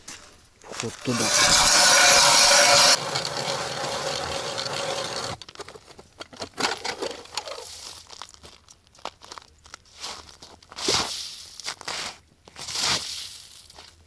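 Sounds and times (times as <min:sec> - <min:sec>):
ice auger grinding into ice: 0:01.0 - 0:05.4
crunches and scrapes on ice: 0:07.1 - 0:14.0.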